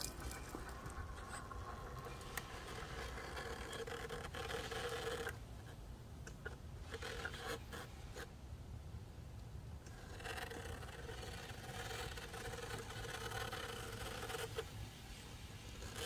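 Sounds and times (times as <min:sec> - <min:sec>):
faint knocks and scrapes on stones: 0:00.0 - 0:08.3.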